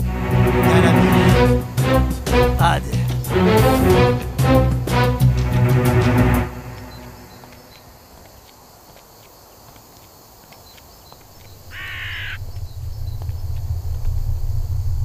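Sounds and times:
forest ambience with faint ticks: 0:06.7 - 0:15.0
low rumble: 0:11.5 - 0:15.0
crow cawing: 0:11.6 - 0:12.5.

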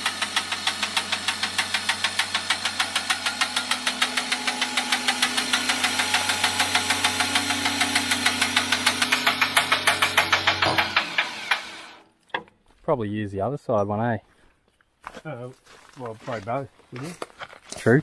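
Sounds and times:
rapid even clicking clatter: 0:00.0 - 0:12.0
electric hoist motor hum: 0:00.0 - 0:12.1.

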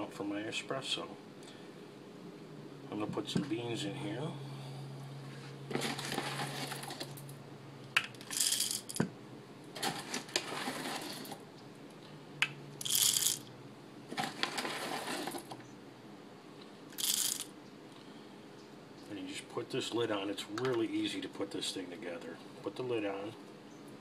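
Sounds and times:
coffee beans rattling into hopper: 0:05.7 - 0:07.3, 0:08.0 - 0:09.1, 0:09.8 - 0:11.4, 0:12.8 - 0:13.5, 0:14.1 - 0:15.6, 0:17.0 - 0:17.5.

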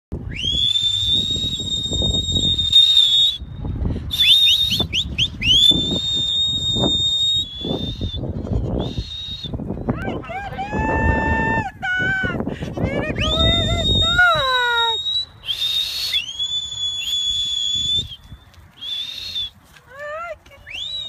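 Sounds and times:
person whistling: 0:00.3 - 0:03.5, 0:04.1 - 0:09.6, 0:13.2 - 0:19.6, 0:20.7 - 0:21.0
short rising whistle chirps: 0:00.3 - 0:03.5, 0:04.1 - 0:09.6, 0:13.2 - 0:19.6.

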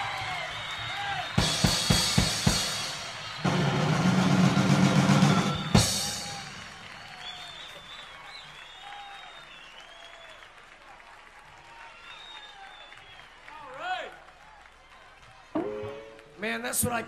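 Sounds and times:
crowd whistling: 0:00.0 - 0:10.8, 0:11.5 - 0:13.9
audience noise: 0:00.0 - 0:17.0
live rock band playing: 0:01.4 - 0:06.6
drum kit hits with cymbals: 0:01.4 - 0:06.8.

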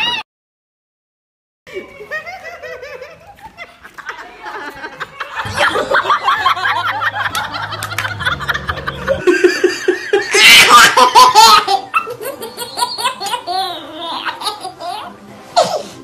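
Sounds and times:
baby laughing: 0:07.3 - 0:15.8.

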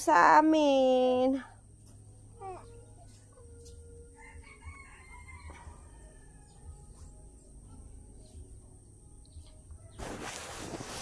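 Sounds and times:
distant rooster crowing: 0:04.0 - 0:06.9.

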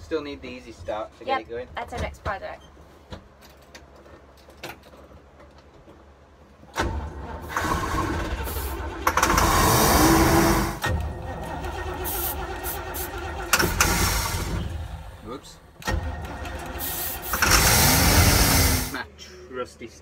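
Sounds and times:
engine starter and engine running: 0:06.7 - 0:15.2, 0:15.8 - 0:19.0.

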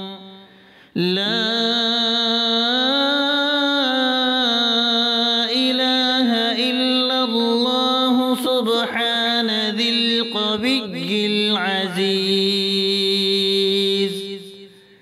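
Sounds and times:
short breath: 0:00.4 - 0:01.0, 0:14.7 - 0:15.0.

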